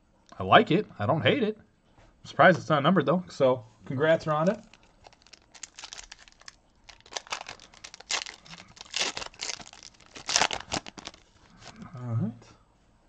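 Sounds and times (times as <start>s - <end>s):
foil wrapper torn and crinkled: 4.4s - 11.7s.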